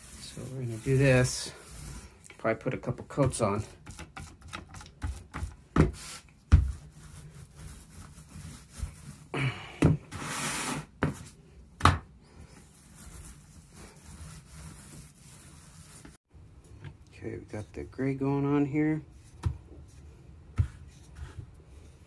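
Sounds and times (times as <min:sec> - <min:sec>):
paint roller scraping rasp: 0:00.0 - 0:02.2, 0:10.1 - 0:10.9, 0:12.7 - 0:16.2.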